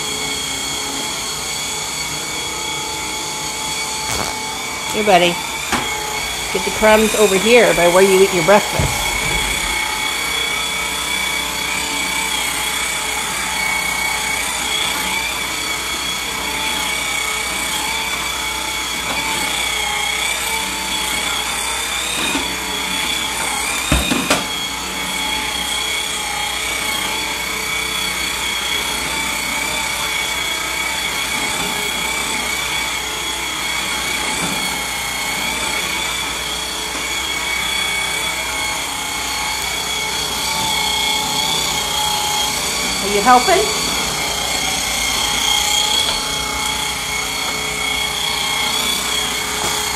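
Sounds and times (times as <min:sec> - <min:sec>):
sweeper motor whining: 0:00.1 - 0:17.9, 0:32.9 - 0:49.9.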